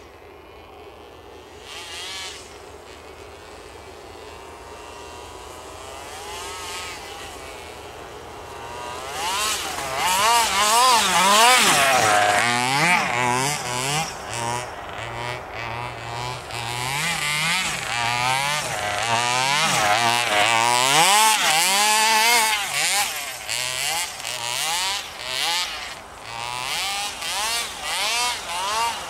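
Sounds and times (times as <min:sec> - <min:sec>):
two-stroke engine revving: 0:00.0 - 0:29.0.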